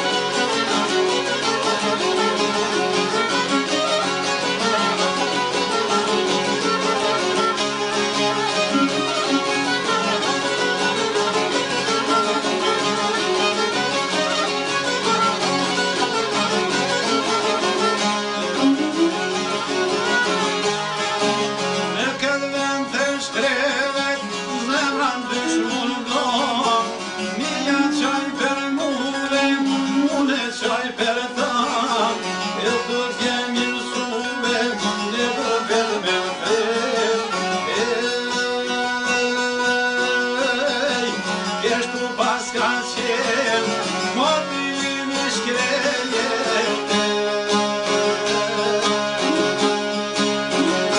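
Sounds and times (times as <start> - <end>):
plucked lutes strumming: 0.0 - 50.9
man singing: 21.9 - 50.9.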